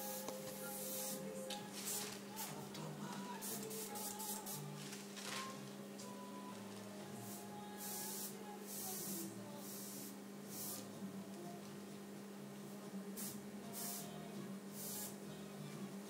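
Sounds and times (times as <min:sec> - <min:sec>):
airbrush spraying hiss: 0:00.0 - 0:02.6, 0:03.4 - 0:04.7, 0:07.2 - 0:10.9, 0:13.2 - 0:14.1, 0:14.8 - 0:15.2.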